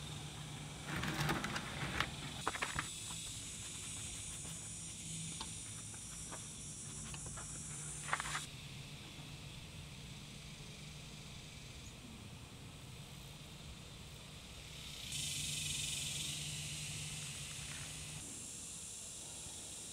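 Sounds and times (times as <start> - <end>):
cloth rag wiping engine: 0.2 - 8.5.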